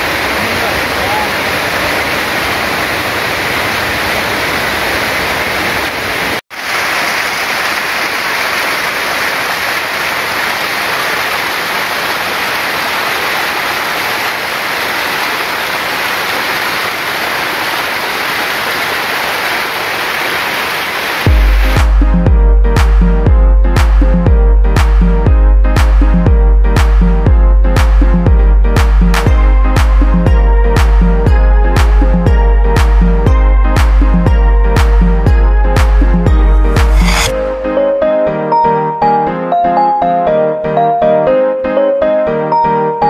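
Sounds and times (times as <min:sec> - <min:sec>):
water rushing down rocky cascade: 0:00.0 - 0:21.9.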